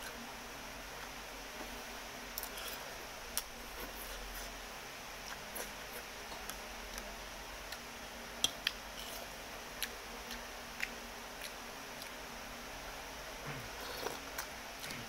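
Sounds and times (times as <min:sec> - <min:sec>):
steady low hiss: 0:00.0 - 0:15.0.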